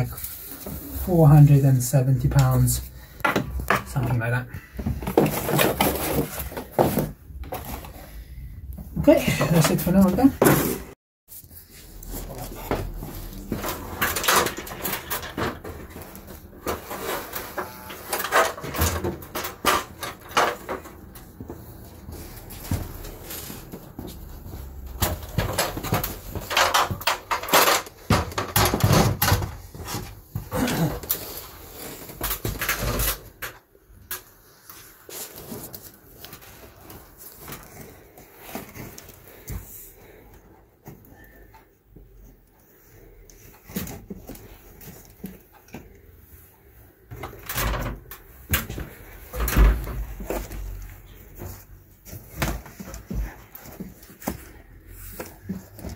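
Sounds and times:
stepladder knocking and scraping: 9.0s - 11.0s, 12.6s - 30.9s
rustling: 34.2s - 40.4s.

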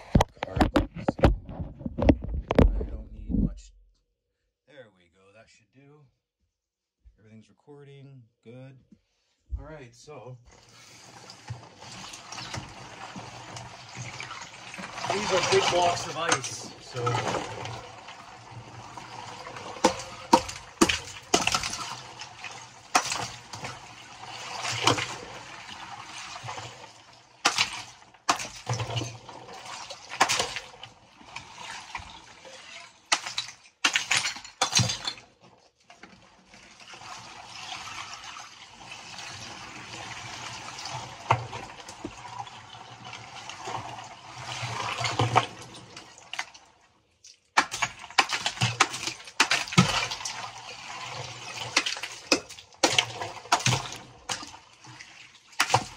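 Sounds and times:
water sloshing and splashing: 10.5s - 55.9s
hammer striking ice: 19.8s - 21.9s, 22.9s - 23.4s, 27.4s - 28.7s, 30.2s - 30.6s, 33.1s - 35.2s, 47.6s - 50.0s.

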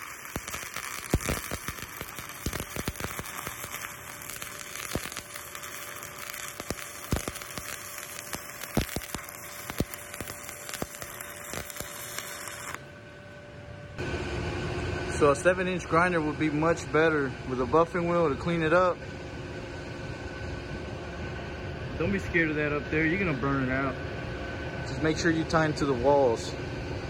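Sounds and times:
welding arc crackling and hissing: 0.0s - 12.9s.

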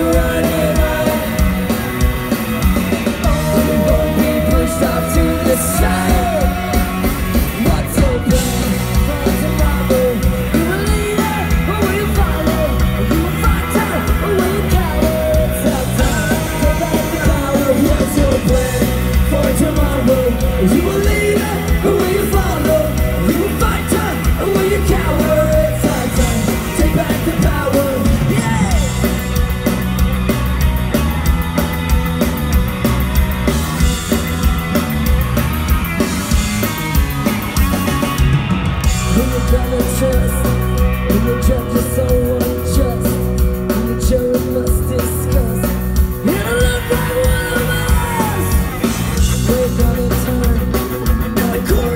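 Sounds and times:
person singing: 0.0s - 2.0s, 3.0s - 29.3s, 39.0s - 51.9s
live ska-punk band playing: 0.0s - 51.9s.

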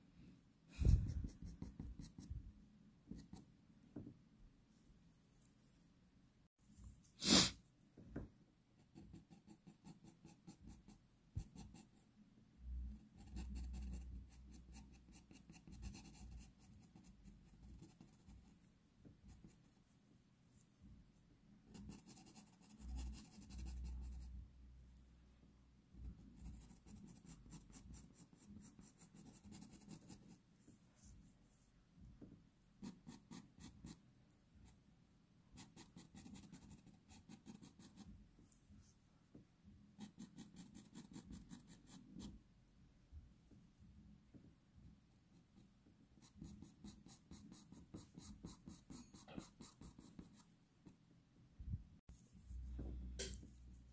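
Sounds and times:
pastel pencil scratching paper: 0.8s - 2.4s, 8.8s - 12.0s, 13.1s - 18.6s, 21.7s - 24.3s, 26.1s - 30.4s, 32.8s - 34.0s, 35.6s - 38.1s, 40.0s - 42.4s, 45.3s - 51.0s.

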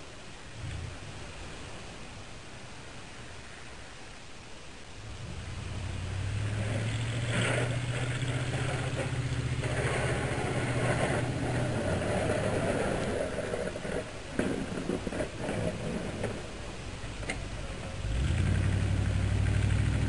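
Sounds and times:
pickup truck engine running: 5.1s - 16.3s
plow blade scraping snow: 5.1s - 20.0s.

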